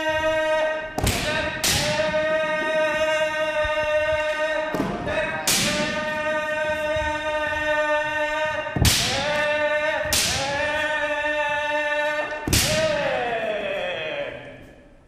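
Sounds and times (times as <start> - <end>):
people shouting: 0.0 - 14.5
bamboo sword strikes: 1.0 - 2.1, 4.8 - 6.0, 8.8 - 9.4, 10.0 - 10.6, 12.4 - 13.0.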